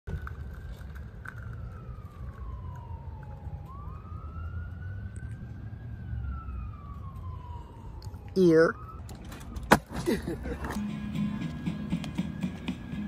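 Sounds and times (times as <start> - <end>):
emergency siren wailing: 0.1 - 9.7, 11.0 - 13.0.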